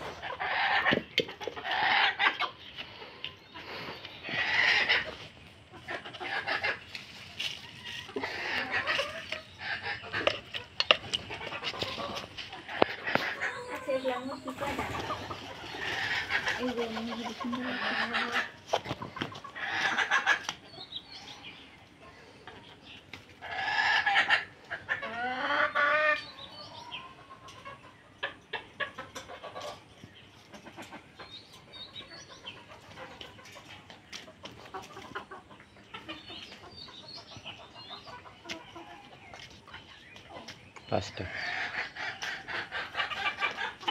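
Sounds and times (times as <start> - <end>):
hens clucking: 0.0 - 43.9.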